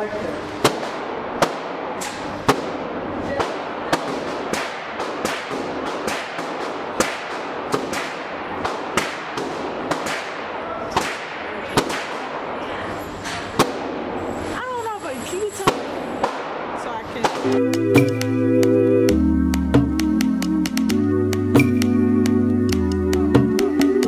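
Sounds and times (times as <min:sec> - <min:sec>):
gunshots echoing indoors: 0:00.6 - 0:12.9, 0:13.6 - 0:14.2, 0:15.7 - 0:17.4.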